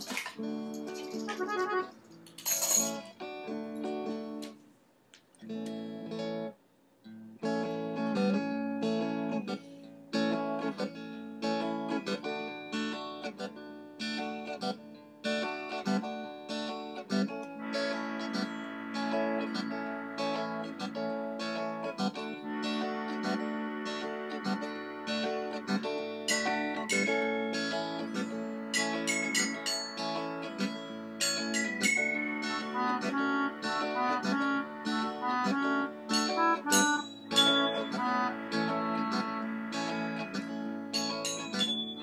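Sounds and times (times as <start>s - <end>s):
acoustic guitar picking: 15.5s - 42.0s
held higher tone: 22.1s - 42.0s.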